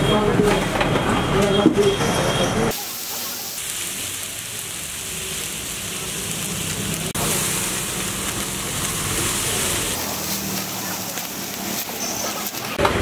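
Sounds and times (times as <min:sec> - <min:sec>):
batter sizzling on a hot griddle: 0:02.7 - 0:13.0.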